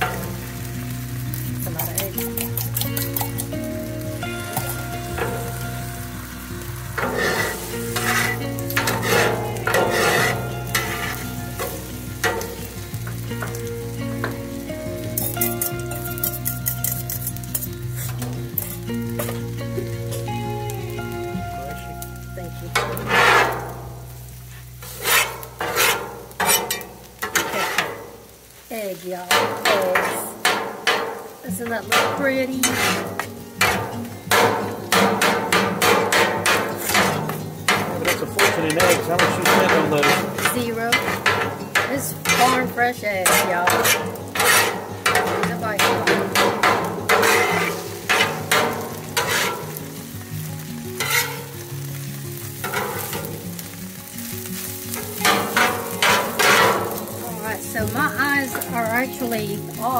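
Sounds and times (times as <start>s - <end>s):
eggs sizzling on hot steel: 0.0s - 59.9s
metal spatulas scraping griddle: 1.6s - 3.6s, 6.9s - 12.8s, 15.2s - 19.5s, 22.8s - 28.2s, 29.3s - 50.0s, 51.0s - 51.6s, 52.6s - 53.4s, 54.6s - 59.2s.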